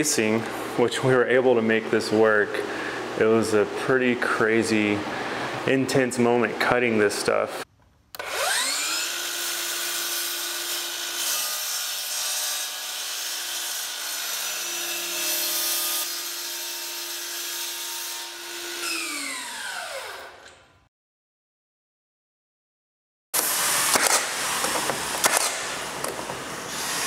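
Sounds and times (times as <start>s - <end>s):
miter saw whining: 8.2s - 11.2s, 18.2s - 20.4s
saw blade cutting wood: 8.2s - 20.4s, 23.4s - 25.8s.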